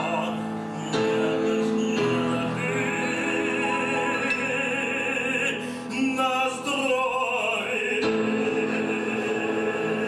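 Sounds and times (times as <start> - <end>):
man singing operatically: 0.0 - 10.0
piano: 0.0 - 10.0.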